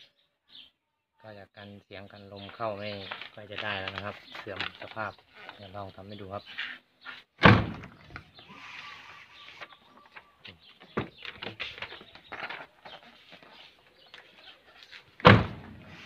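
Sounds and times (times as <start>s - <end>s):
car door slamming: 7.4s - 7.9s, 15.2s - 15.8s.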